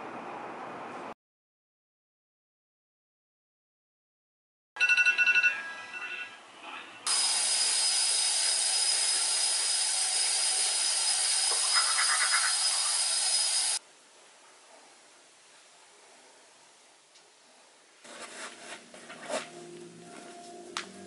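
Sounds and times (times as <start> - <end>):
alarm ringtone beeping: 4.8 - 6.4
loud steady hiss: 7.1 - 11.8.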